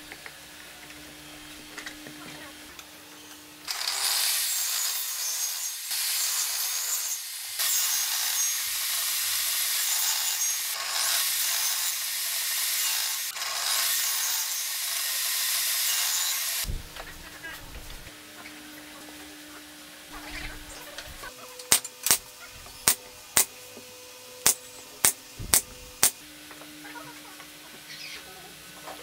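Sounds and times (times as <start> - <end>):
table saw cutting wood: 1.0 - 26.2.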